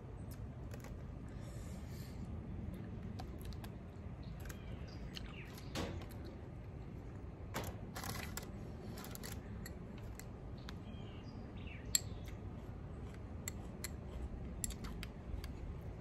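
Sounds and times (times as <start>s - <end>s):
outdoor background noise: 0.0s - 16.0s
birds chirping: 3.9s - 6.3s, 9.3s - 13.2s.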